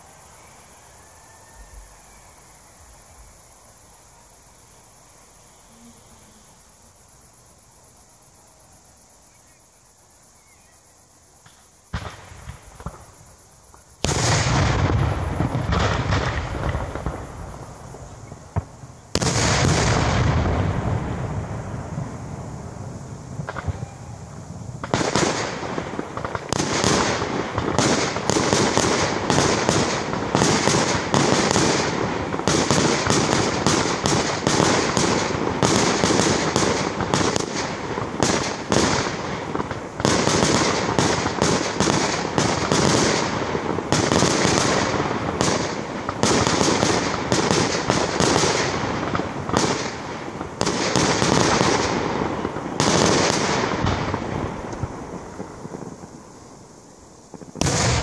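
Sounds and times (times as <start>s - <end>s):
fireworks bangs: 11.4s - 58.0s.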